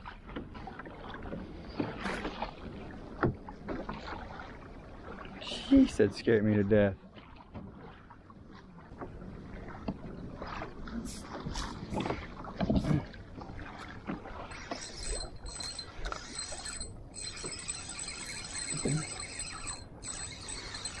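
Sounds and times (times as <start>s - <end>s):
water lapping against kayak: 0.0s - 21.0s
fishing gear knocking: 14.5s - 21.0s.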